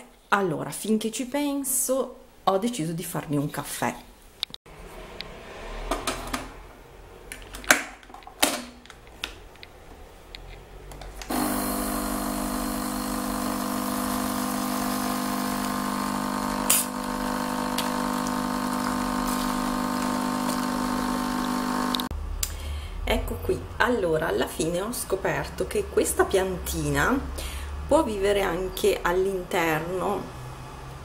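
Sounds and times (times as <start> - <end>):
clicks and knocks of handling: 7.3 - 9.8
coffee machine pump humming: 11.2 - 22.1.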